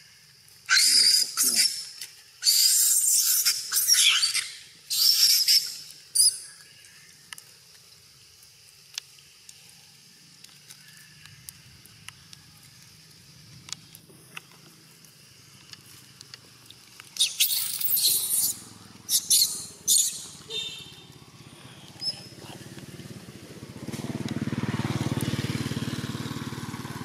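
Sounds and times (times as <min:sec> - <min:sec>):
monkey squealing: 0:00.7 - 0:06.4, 0:17.2 - 0:20.6.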